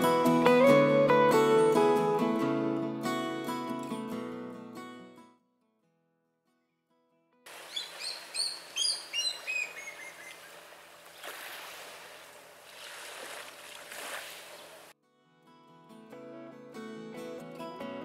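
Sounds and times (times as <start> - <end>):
birds chirping: 7.5 - 11.2
gentle waves on the shore: 7.5 - 14.9.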